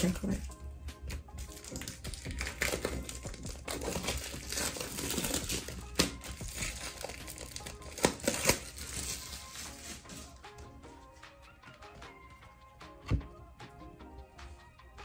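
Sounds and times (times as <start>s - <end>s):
plastic wrapping crinkling: 1.4s - 10.4s.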